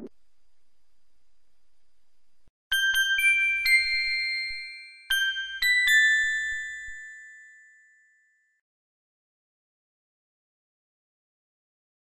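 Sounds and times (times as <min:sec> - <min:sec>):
bell-like chime notes: 0:02.7 - 0:08.6.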